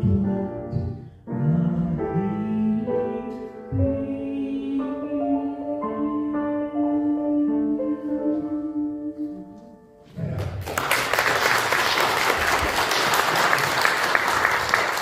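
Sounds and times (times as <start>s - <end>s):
piano notes ringing: 0.0s - 10.1s
audience applause: 10.3s - 15.0s.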